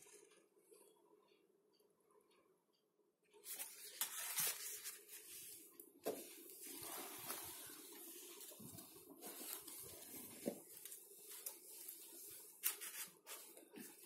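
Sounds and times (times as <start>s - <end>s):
paper and card rustling: 3.4s - 14.0s.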